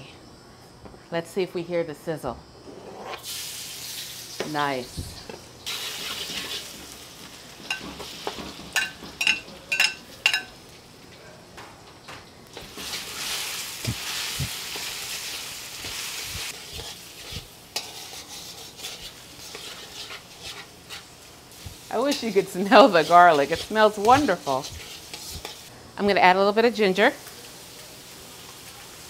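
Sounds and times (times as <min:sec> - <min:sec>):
meat sizzling in a wok: 0:03.2 - 0:11.0, 0:12.5 - 0:25.7, 0:26.7 - 0:29.0
metal tongs clinking on wok: 0:08.8 - 0:10.6.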